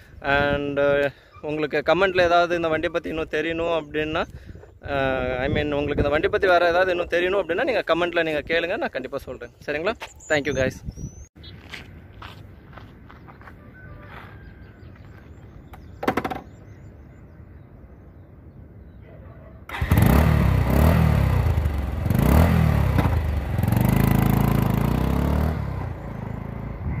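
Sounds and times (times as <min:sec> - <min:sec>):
motorcycle engine revving: 0:19.7 - 0:27.0.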